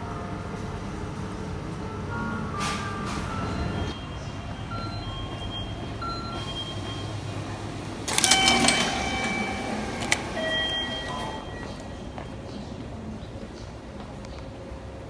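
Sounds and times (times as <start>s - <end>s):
ticket gate whirring and clatter: 6.0s - 12.2s.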